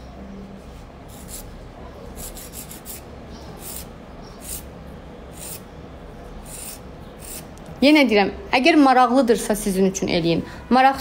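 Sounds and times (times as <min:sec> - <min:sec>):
nail file rasping: 0:02.2 - 0:03.0, 0:03.6 - 0:04.6, 0:05.4 - 0:05.6, 0:06.5 - 0:07.4.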